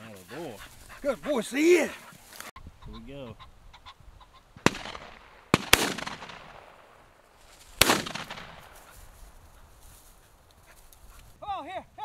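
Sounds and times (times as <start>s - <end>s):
shotgun shots with echo: 4.6s - 7.0s, 7.8s - 8.9s.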